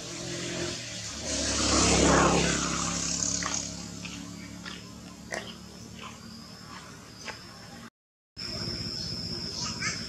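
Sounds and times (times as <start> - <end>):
vehicle passing by: 0.0 - 7.9.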